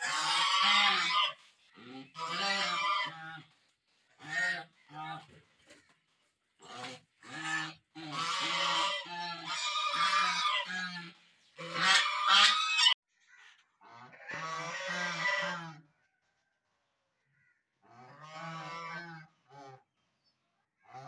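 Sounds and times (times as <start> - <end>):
geese honking: 0.0 - 3.6, 4.2 - 5.4, 6.6 - 13.0, 14.1 - 15.8, 18.0 - 19.3.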